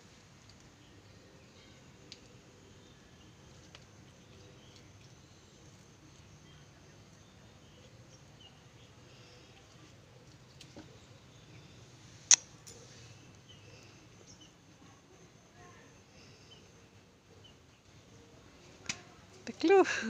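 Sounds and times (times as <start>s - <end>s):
faint bird or insect chirps: 0.5s - 18.3s
sharp loud click: 12.3s - 12.5s.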